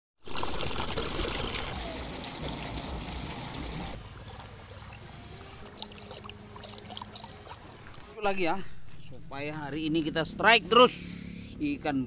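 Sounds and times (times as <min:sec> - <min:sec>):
water gurgling down a pipe: 0:00.2 - 0:07.6.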